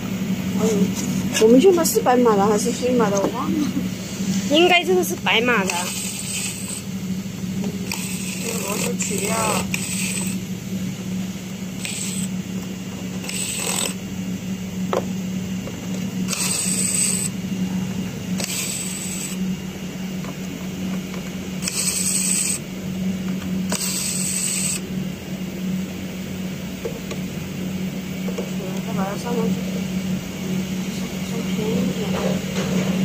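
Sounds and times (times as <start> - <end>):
cordless screwdriver running: 5.2 - 6.9, 7.7 - 10.5, 11.7 - 14.1, 16.2 - 17.4, 18.4 - 19.4, 21.6 - 22.7, 23.6 - 24.9.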